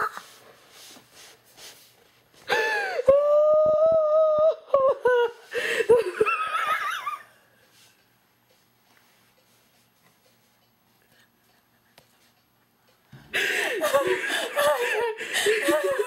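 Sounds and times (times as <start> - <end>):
women laughing: 4.8 - 7.3, 13.3 - 16.0.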